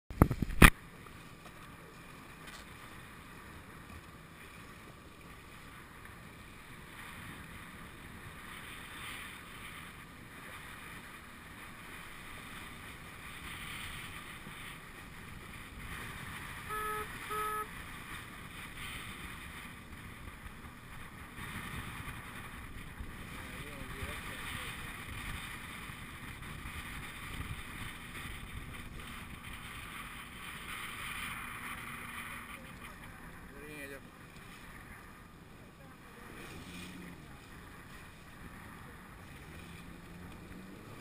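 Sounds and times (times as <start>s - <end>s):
wind and water noise: 0.1s - 41.0s
wind buffeting microphone: 2.0s - 41.0s
short high-pitched tones: 16.6s - 17.7s.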